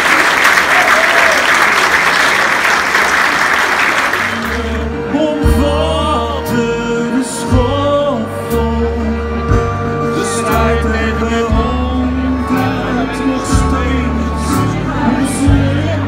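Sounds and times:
audience applause: 0.0 - 4.9
person singing: 4.3 - 16.0
held bass notes: 4.4 - 16.0
guitar: 4.5 - 16.0.

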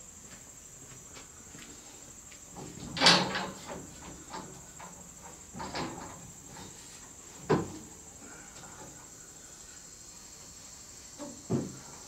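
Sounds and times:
crickets chirring: 0.0 - 12.0
knocks on metal scaffold: 11.5 - 11.8.

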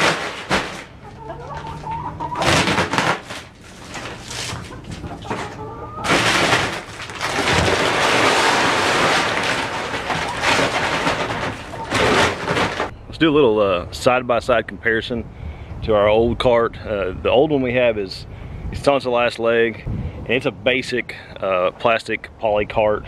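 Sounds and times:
paper bag rustling: 2.5 - 12.9.

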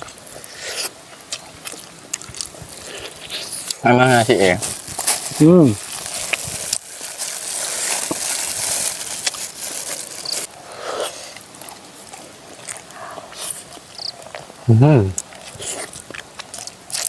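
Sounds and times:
chewing and crunching: 0.0 - 17.0
hiss: 10.6 - 11.4.

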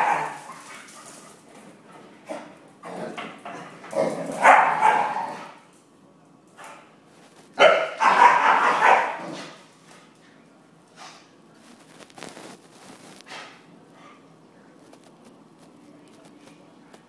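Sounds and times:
dogs barking roughly: 0.0 - 1.0, 2.3 - 5.6, 7.6 - 9.6.

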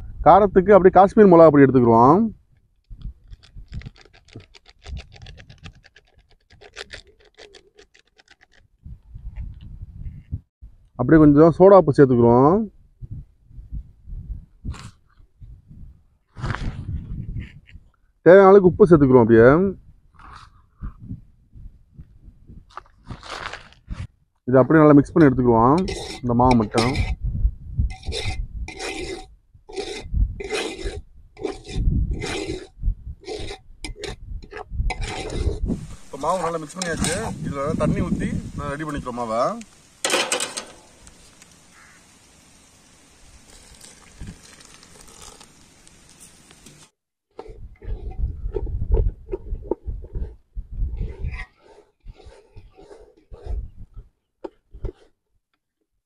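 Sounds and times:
plastic sachet crinkling: 2.8 - 8.7, 43.4 - 46.6
whisk rasping in metal bowl: 25.8 - 27.2, 27.9 - 37.2, 47.4 - 48.7, 50.1 - 53.7.

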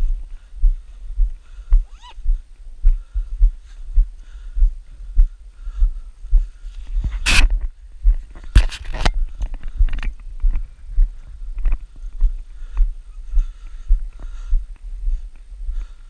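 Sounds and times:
camera handling rustle: 6.7 - 7.7, 8.4 - 10.2.

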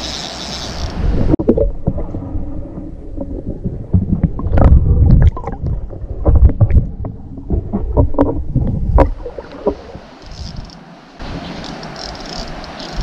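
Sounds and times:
muffled underwater water rumble: 1.0 - 10.1
underwater clicks and knocks: 3.2 - 10.8.

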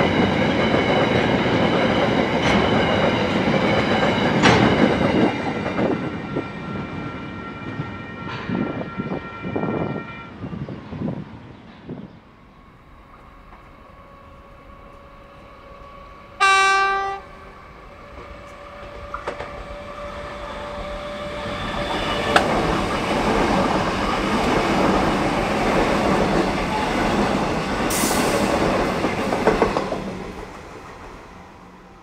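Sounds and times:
train wheels rumbling on rails: 0.0 - 32.0
train horn blast: 16.4 - 17.5.

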